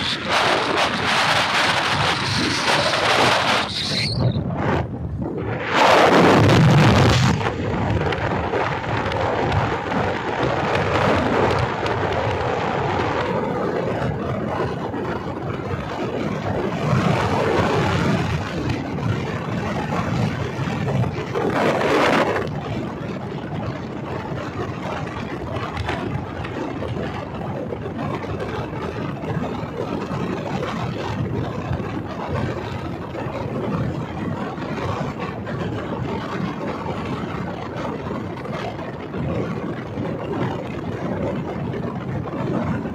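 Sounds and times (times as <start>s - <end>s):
motorcycle engine running: 0.0s - 4.9s
wind rushing over microphone: 0.0s - 42.9s.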